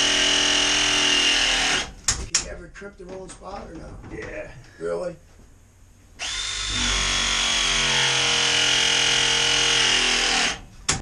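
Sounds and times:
press tool motor running: 0:06.2 - 0:10.6.

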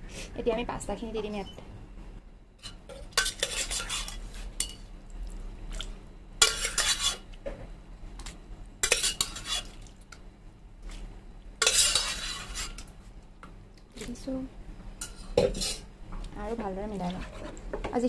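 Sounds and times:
spoon scraping a pan: 0:02.6 - 0:04.8, 0:06.4 - 0:07.3, 0:08.8 - 0:09.8, 0:11.6 - 0:12.9, 0:15.0 - 0:15.9, 0:17.0 - 0:17.7.

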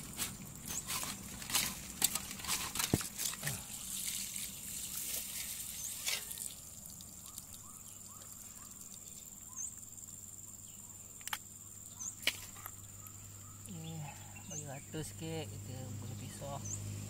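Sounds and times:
water pouring onto wet ground: 0:00.0 - 0:09.5.

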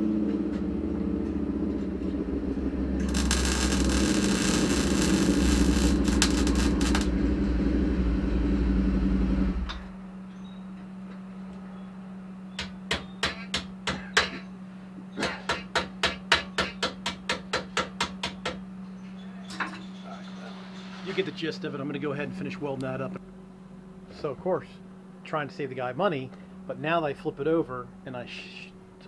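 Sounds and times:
steady low hum: 0:00.0 - 0:29.0
welding arc crackling: 0:03.0 - 0:07.1.

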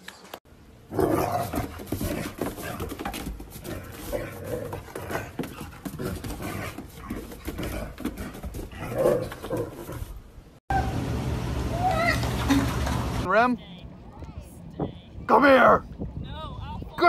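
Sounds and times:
paws scrabbling on wooden boards: 0:01.3 - 0:10.3.

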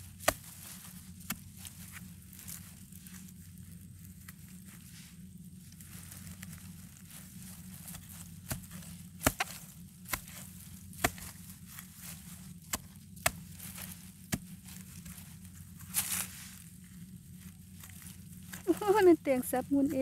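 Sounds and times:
digging tool striking dry soil: 0:00.0 - 0:03.2, 0:07.4 - 0:16.6.

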